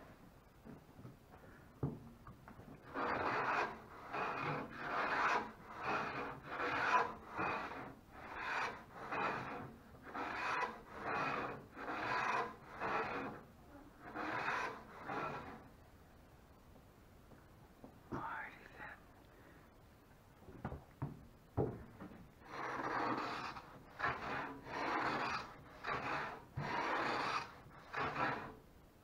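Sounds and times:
hand plane shaving wood: 0:02.8 - 0:15.7, 0:22.4 - 0:28.6.

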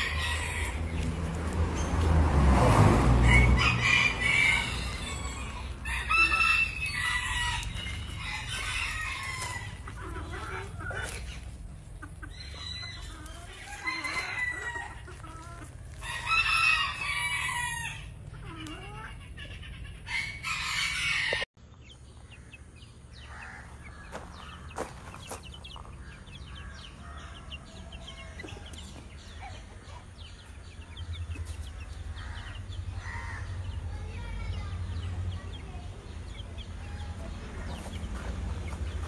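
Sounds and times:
roosters crowing: 0:00.0 - 0:11.4, 0:12.2 - 0:18.4, 0:19.0 - 0:21.5, 0:22.2 - 0:39.0
chicken clucking: 0:04.6 - 0:16.2, 0:23.2 - 0:39.0.

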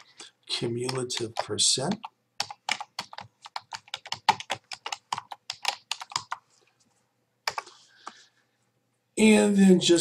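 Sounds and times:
typing on computer keyboard: 0:00.6 - 0:06.4, 0:07.4 - 0:08.2.

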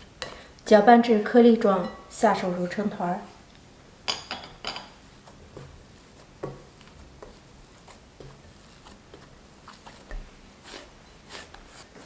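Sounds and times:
hands kneading dough: 0:02.4 - 0:12.0.

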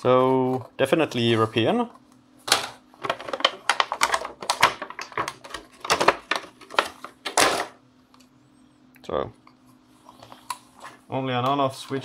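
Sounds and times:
plastic packaging crinkling: 0:03.0 - 0:07.6.

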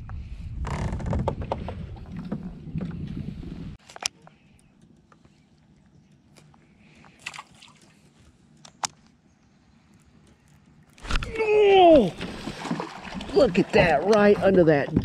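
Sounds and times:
water lapping against boat hull: 0:00.7 - 0:04.5, 0:09.8 - 0:15.0.

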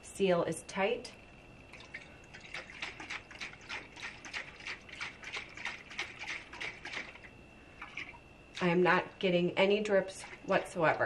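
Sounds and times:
water sloshing in bottle: 0:01.7 - 0:09.2, 0:10.0 - 0:11.0.

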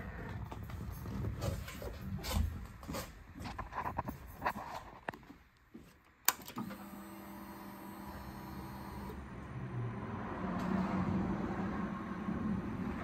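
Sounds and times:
fuel pump electric whirr: 0:06.3 - 0:09.4.

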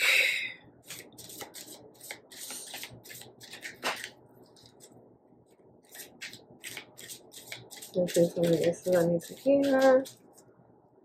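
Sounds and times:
cards being shuffled: 0:00.8 - 0:04.9, 0:05.9 - 0:10.2.

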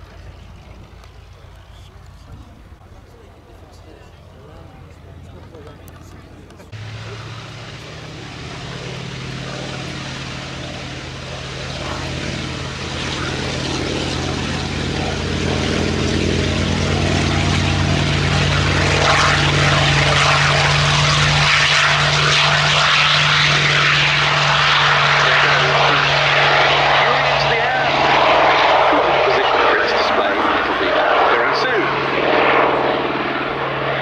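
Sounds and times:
propeller engine drone: 0:00.0 - 0:34.0
rushing noise: 0:06.8 - 0:13.8.

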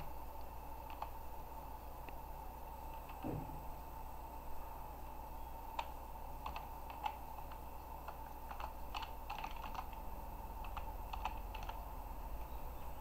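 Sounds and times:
typing on computer keyboard: 0:00.8 - 0:01.2, 0:05.8 - 0:10.0, 0:10.6 - 0:11.8.

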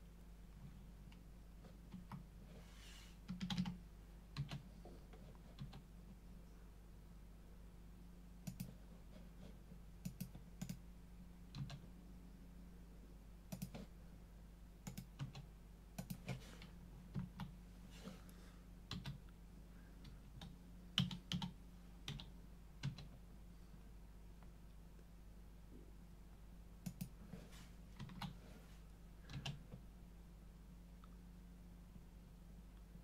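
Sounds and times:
faint electrical hum: 0:00.0 - 0:33.0
computer keyboard key presses: 0:03.3 - 0:03.8, 0:10.0 - 0:10.8, 0:13.5 - 0:13.8, 0:14.8 - 0:15.4, 0:20.4 - 0:23.1.

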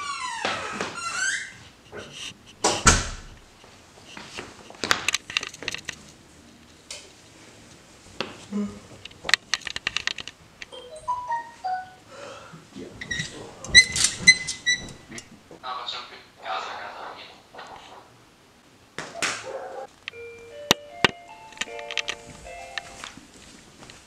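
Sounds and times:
handling clicks and rustling: 0:02.2 - 0:07.8, 0:09.0 - 0:10.8, 0:20.1 - 0:24.0.

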